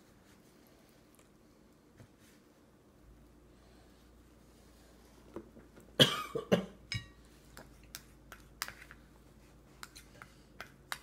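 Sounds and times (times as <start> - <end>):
cough-like bursts: 6.0 - 6.8.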